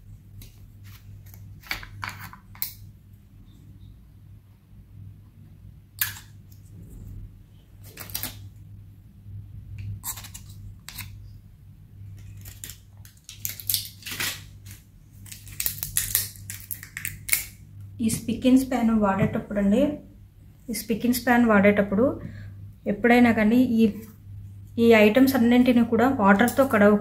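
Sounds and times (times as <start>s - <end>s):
steady low hum: 0.0s - 13.6s, 14.4s - 27.0s.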